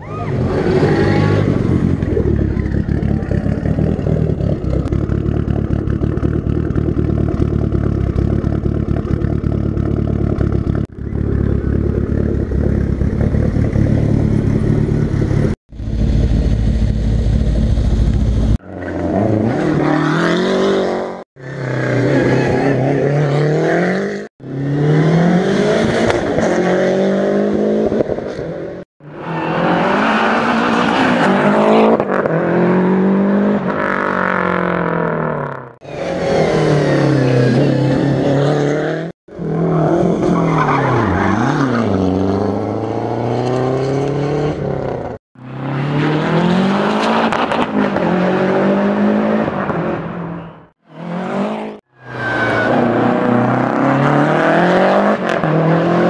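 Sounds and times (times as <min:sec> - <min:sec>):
car engines idling: 0:00.2 - 0:18.6
cars accelerating hard: 0:18.6 - 0:56.0.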